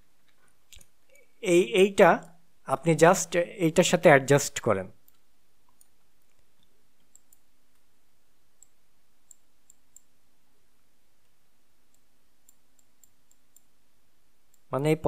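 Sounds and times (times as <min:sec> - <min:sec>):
low steady hum: 0:00.0 - 0:15.0
computer mouse clicks: 0:05.0 - 0:07.9, 0:08.6 - 0:10.2, 0:11.2 - 0:13.7.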